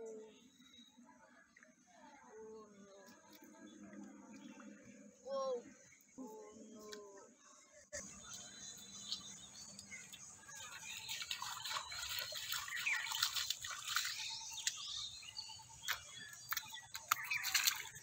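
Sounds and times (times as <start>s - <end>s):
birds chirping and twittering: 0.0s - 18.0s
feet wading through shallow water: 8.0s - 18.0s.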